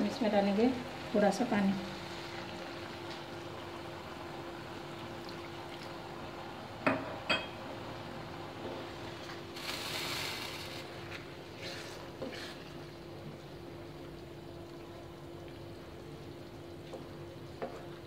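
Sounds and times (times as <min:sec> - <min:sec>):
water pouring into a pan: 0:01.8 - 0:03.8, 0:09.5 - 0:11.2.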